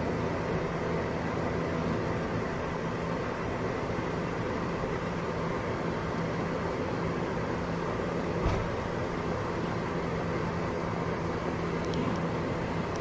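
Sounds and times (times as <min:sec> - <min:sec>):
road and wind noise: 0:00.0 - 0:13.0
thump: 0:08.4 - 0:08.8.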